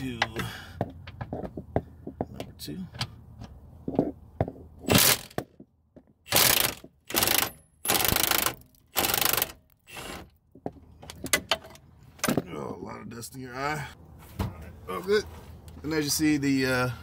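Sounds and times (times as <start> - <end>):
impact wrench hammering: 6.3 - 10.2.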